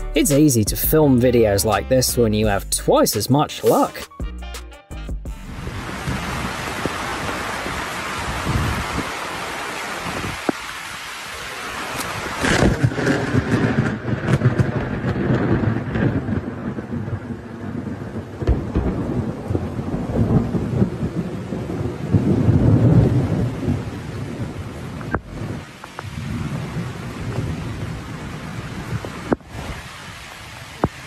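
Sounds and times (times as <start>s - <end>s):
heavy rain: 5.4s - 31.0s
deep thunder rumbles: 5.5s - 9.2s, 12.1s - 29.9s.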